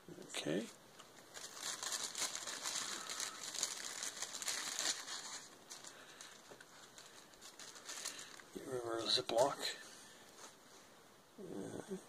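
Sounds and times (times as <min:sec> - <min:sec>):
plastic bag crinkling: 0:01.1 - 0:09.6.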